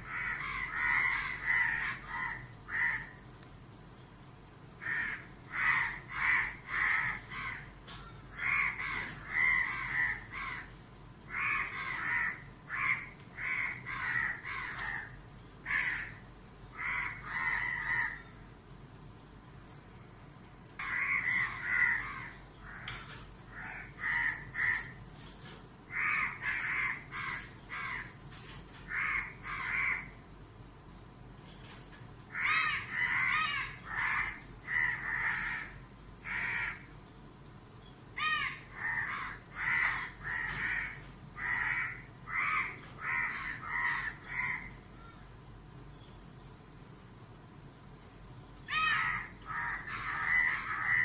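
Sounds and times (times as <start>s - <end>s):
crows cawing: 0.0s - 3.3s, 4.8s - 18.5s, 20.7s - 30.2s, 32.3s - 37.0s, 38.1s - 45.3s, 48.6s - 51.0s.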